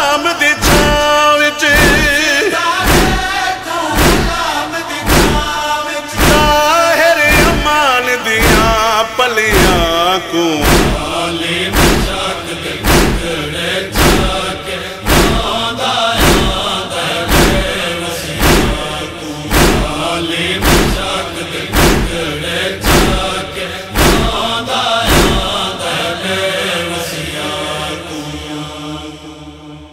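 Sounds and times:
men chanting in unison: 0.0 - 29.9
chest-beating thuds: 0.6 - 25.8.

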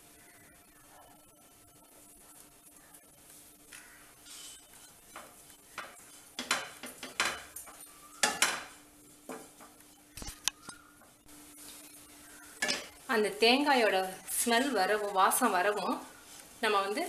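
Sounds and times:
wooden spatula scraping a pan: 3.2 - 10.0, 14.0 - 17.0.

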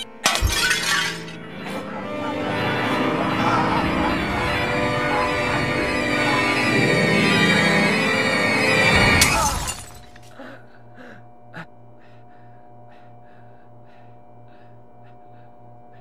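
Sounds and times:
horror score music: 0.0 - 16.0
steady low hum: 9.5 - 16.0.

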